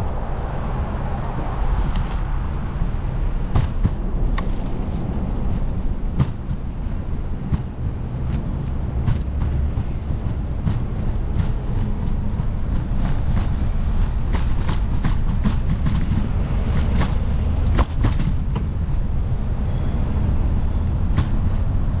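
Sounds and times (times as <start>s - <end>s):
wind rumbling on microphone: 0.0s - 22.0s
bicycle clicks and rattles: 3.6s - 16.2s.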